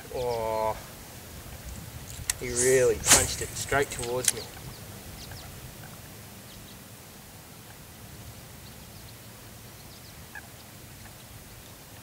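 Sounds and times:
steady low rumble: 0:01.2 - 0:06.5.

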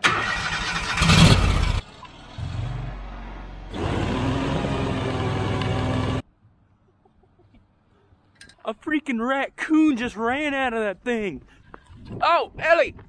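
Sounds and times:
engine running: 0:00.0 - 0:06.2.

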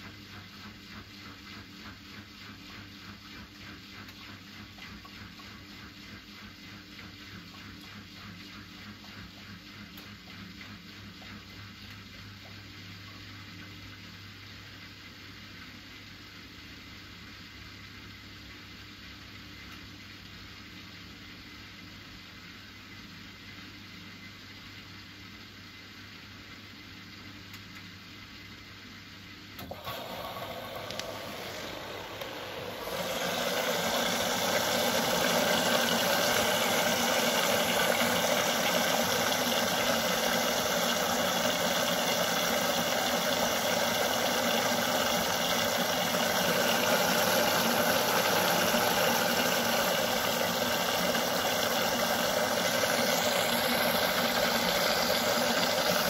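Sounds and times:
washing machine running: 0:00.0 - 0:15.8, 0:29.5 - 0:56.0.

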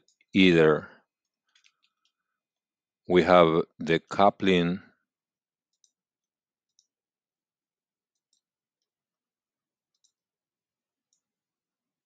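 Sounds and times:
faint computer mouse clicks: 0:09.9 - 0:10.2.

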